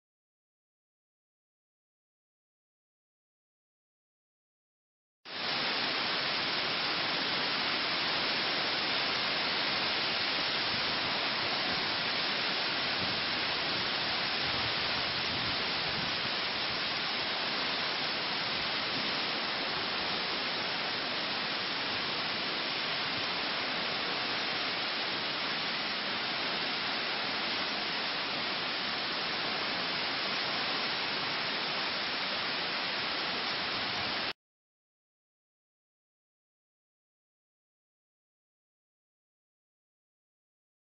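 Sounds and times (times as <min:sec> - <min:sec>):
driving rain: 0:05.3 - 0:34.3
strong wind: 0:10.5 - 0:20.2.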